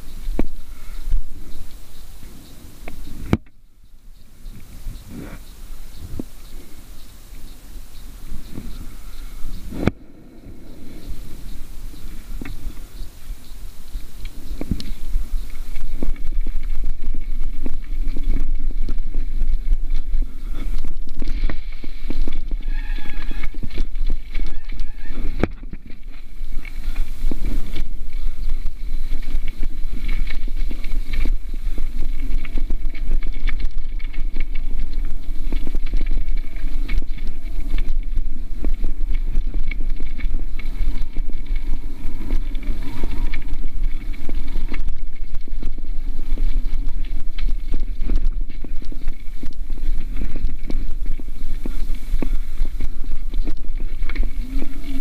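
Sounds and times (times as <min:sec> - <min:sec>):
bike tyres rattling over stones: 0:00.0 - 0:55.0
wind rumble on microphone: 0:00.0 - 0:55.0.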